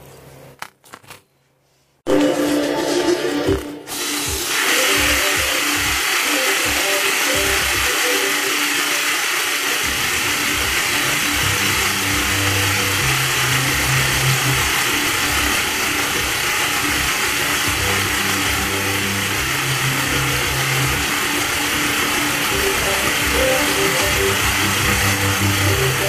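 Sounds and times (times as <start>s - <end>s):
finger spinner whirring: 4.6s - 26.0s
background music bass line: 9.9s - 26.0s.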